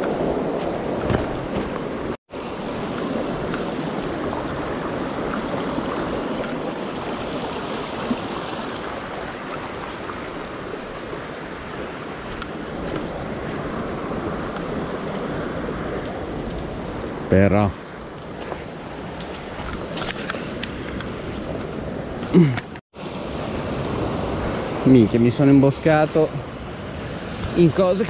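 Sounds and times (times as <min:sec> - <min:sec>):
stream rushing over stones: 0:00.0 - 0:16.0.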